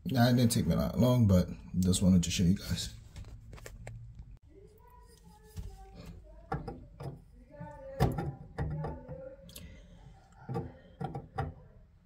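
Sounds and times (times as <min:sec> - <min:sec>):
copper pipes clicking and knocking: 0:06.3 - 0:09.7, 0:10.3 - 0:11.8.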